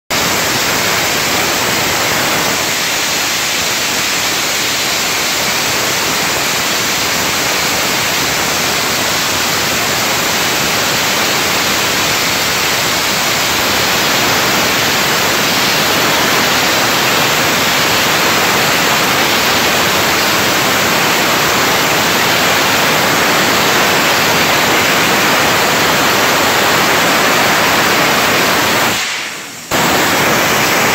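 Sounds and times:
sandblasting nozzle hissing: 1.9s - 5.6s, 10.9s - 30.9s.

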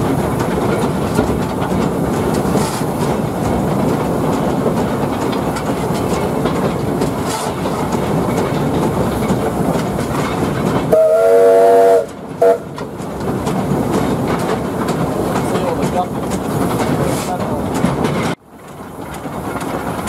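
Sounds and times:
locomotive rattle and rail noise: 0.0s - 20.0s
steam whistle blast: 10.9s - 12.6s.

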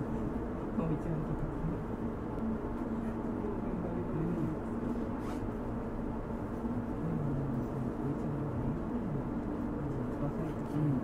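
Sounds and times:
train equipment hum: 0.0s - 11.0s
muffled voice: 7.0s - 11.0s.

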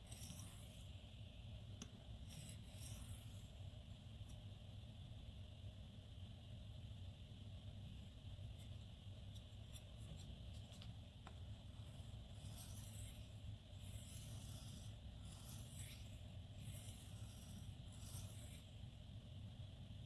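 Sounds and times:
knife scraping on whetstone: 12.4s - 18.7s.

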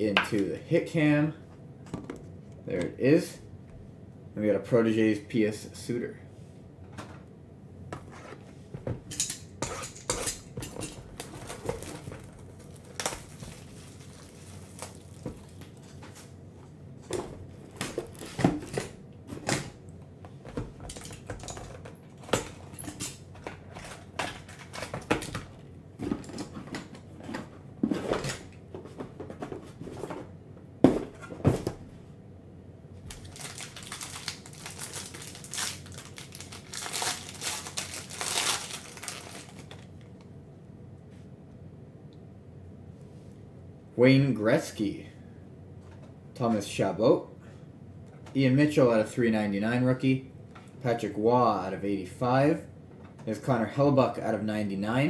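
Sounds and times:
card pack crinkling: 11.1s - 16.1s, 33.1s - 40.0s
cardboard boxes handled and set down: 26.0s - 31.9s.

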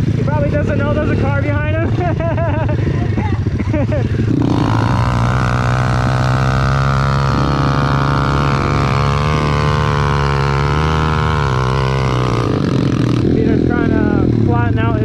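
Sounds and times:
small motorbike engine revving: 0.0s - 15.0s.

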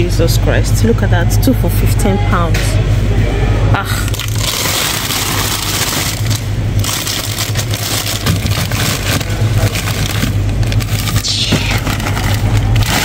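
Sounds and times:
steady low hum: 0.0s - 13.0s
plastic bag crinkling: 4.0s - 13.0s.

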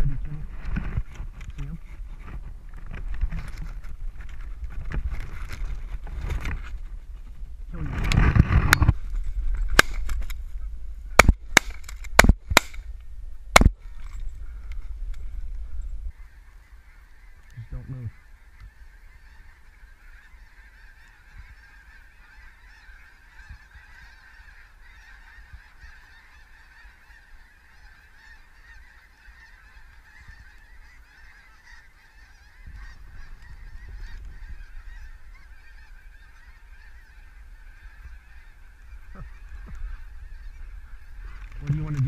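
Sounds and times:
geese honking: 16.1s - 42.0s.

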